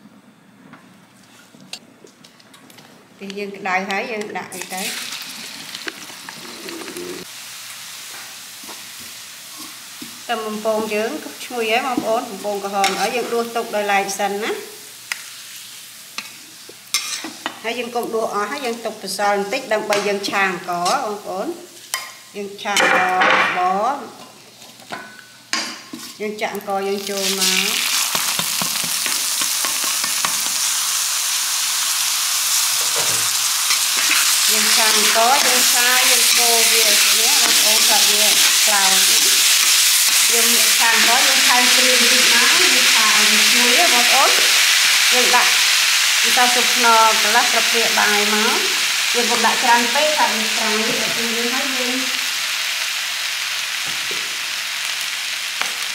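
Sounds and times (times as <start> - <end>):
food sizzling in hot oil: 4.5 - 23.0, 25.1 - 55.9
metal spatula scraping wok: 16.2 - 17.4, 32.8 - 40.3.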